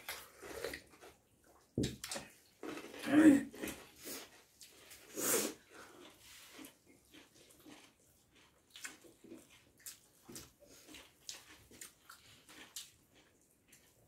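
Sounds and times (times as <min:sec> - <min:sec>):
chewing: 0:00.0 - 0:14.0.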